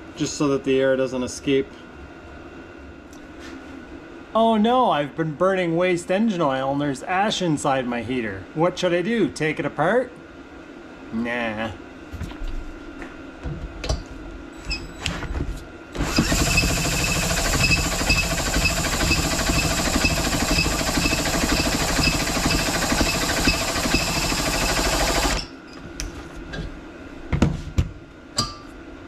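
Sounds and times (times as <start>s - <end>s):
cordless drill spinning: 16.0s - 25.5s.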